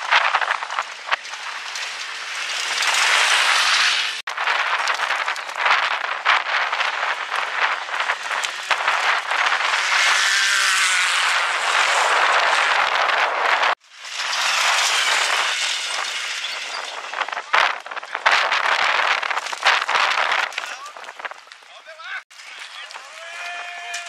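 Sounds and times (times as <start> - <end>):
heavy rushing noise: 0.0 - 21.3
race vehicle engine passing: 8.9 - 17.0.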